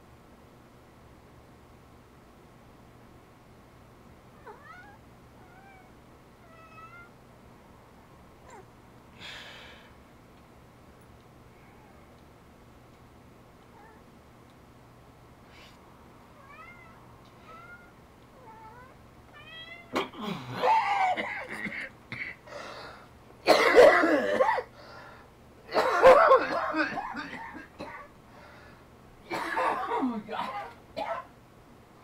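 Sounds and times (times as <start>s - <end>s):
cat meowing: 4.4s - 7.2s, 16.4s - 20.0s.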